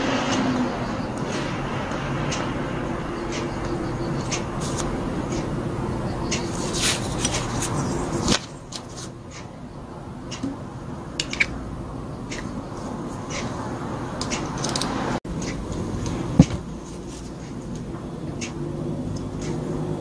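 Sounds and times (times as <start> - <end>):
low steady hum: 0.0 - 20.0
small metal parts clicking: 14.2 - 15.0.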